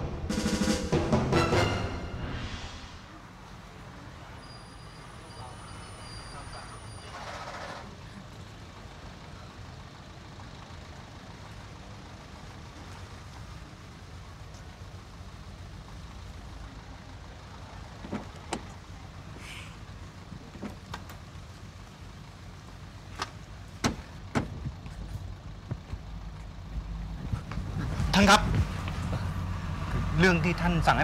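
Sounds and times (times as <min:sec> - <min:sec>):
car engine idling: 0:07.9 - 0:31.0.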